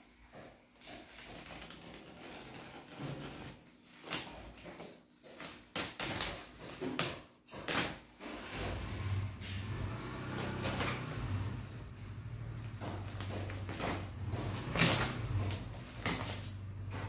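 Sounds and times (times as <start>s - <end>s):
plastic wrapping crinkling: 13.1s - 16.8s
packing tape ripping: 13.7s - 16.7s.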